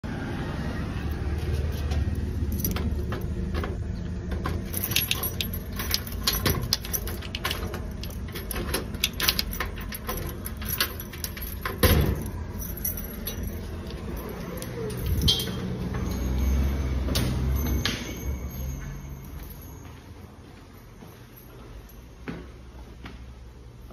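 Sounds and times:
keys jangling: 0:01.6 - 0:03.7, 0:04.3 - 0:19.9
key clicking in door lock: 0:04.5 - 0:12.4.

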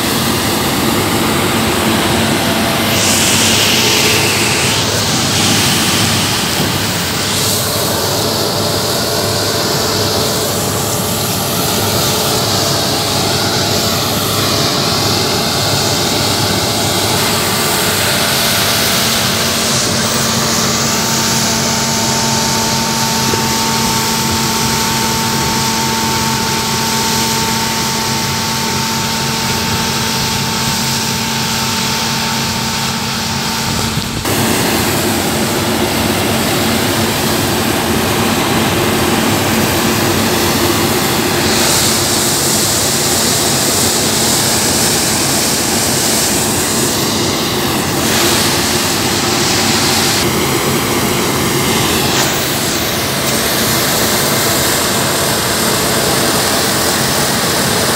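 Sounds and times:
combine harvester machinery drone: 0:00.0 - 0:57.9.

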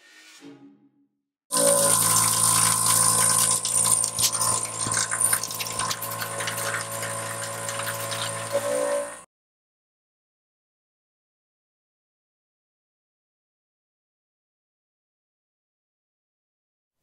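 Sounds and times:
milling machine cutter whine: 0:01.5 - 0:09.2
mist coolant hiss: 0:01.6 - 0:09.2.

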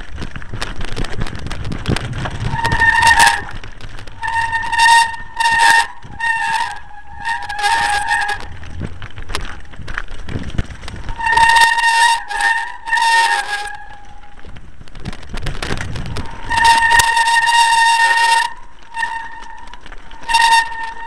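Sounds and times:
bike rattling on rocky track: 0:00.0 - 0:21.0
bike brakes squealing: 0:02.4 - 0:08.7, 0:11.0 - 0:14.4, 0:16.2 - 0:21.0.

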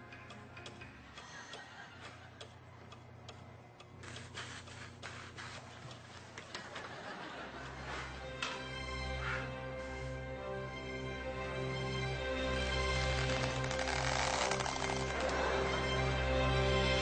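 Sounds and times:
low music: 0:00.0 - 0:03.9, 0:06.8 - 0:17.0
steady ticking: 0:00.0 - 0:04.8.

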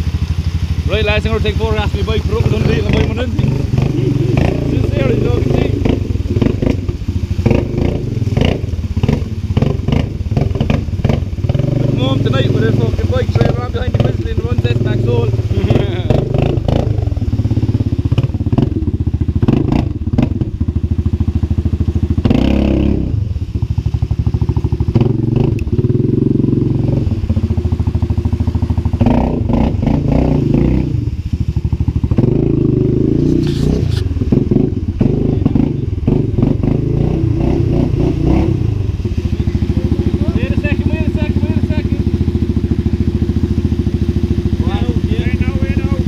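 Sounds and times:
atv engine running: 0:00.0 - 0:46.0
water splashing: 0:00.0 - 0:46.0.

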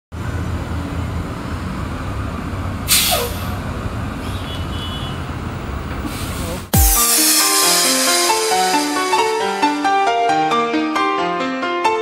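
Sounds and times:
bus engine idling: 0:00.2 - 0:06.9
air brake hiss: 0:02.9 - 0:03.6, 0:06.0 - 0:10.1.

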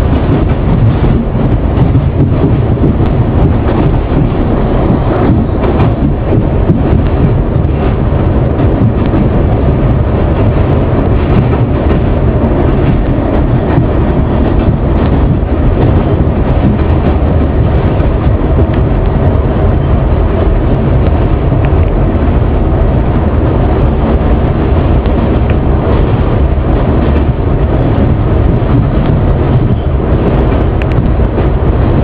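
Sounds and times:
subway train rumbling: 0:00.0 - 0:32.0
faint clicks: 0:30.8 - 0:31.1.

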